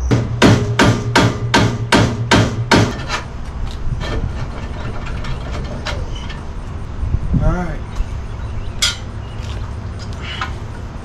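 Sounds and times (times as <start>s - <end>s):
sharp metallic knocks: 0.0s - 3.3s, 8.8s - 9.1s
metal stand parts clanking: 2.7s - 6.8s, 8.8s - 9.1s.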